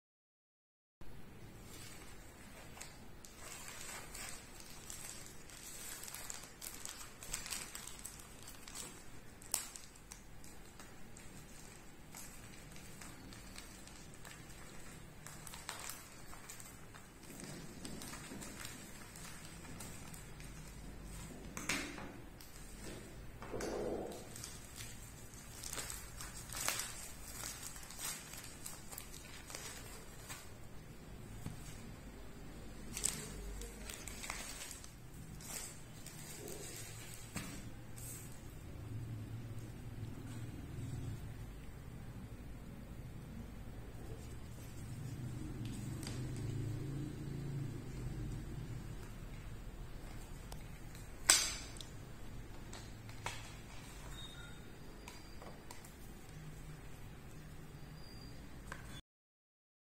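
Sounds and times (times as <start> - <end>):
plastic mailer bag crinkling: 1.5 - 21.6, 22.4 - 38.6, 44.0 - 54.7.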